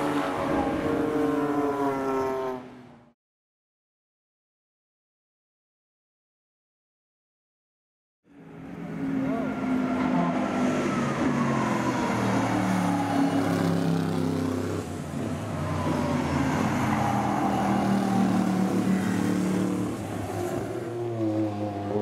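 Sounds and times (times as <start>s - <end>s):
racing car engines: 0.0s - 3.1s, 8.3s - 22.0s.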